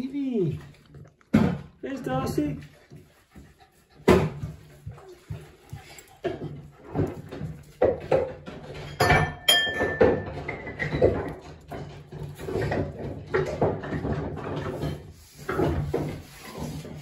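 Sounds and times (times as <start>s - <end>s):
dishes and cutlery clinking: 6.0s - 16.0s.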